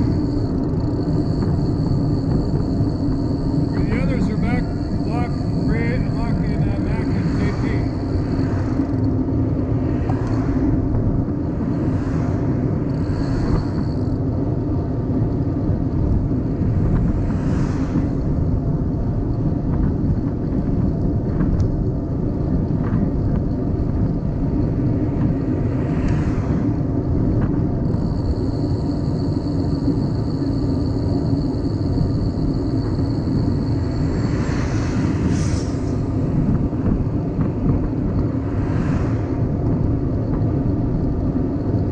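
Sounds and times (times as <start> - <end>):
wind and road noise rumble: 0.0 - 41.9
brief hissing swells: 34.2 - 36.1.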